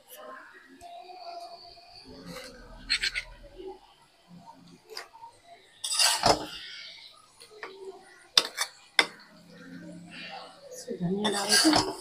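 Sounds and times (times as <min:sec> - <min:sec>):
utensil scraping metal pan: 0:05.8 - 0:06.7, 0:11.2 - 0:12.0.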